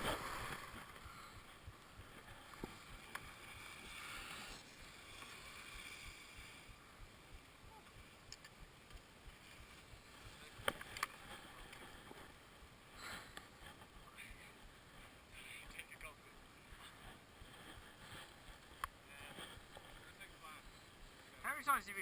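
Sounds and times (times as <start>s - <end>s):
skis sliding over snow: 0.0s - 8.2s, 8.9s - 22.0s
sharp clicks: 8.3s - 9.1s.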